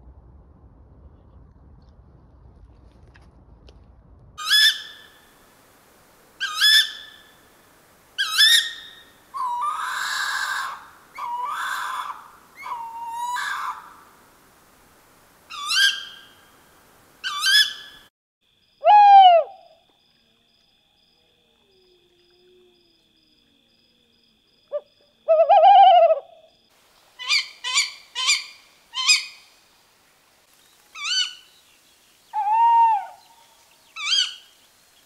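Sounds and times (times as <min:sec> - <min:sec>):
owl calls: 0:04.4 - 0:05.2, 0:06.4 - 0:07.4, 0:08.2 - 0:14.1, 0:15.5 - 0:16.4, 0:17.2 - 0:18.0, 0:18.8 - 0:19.8, 0:24.7 - 0:26.4, 0:27.2 - 0:29.5, 0:31.0 - 0:31.5, 0:32.3 - 0:34.6.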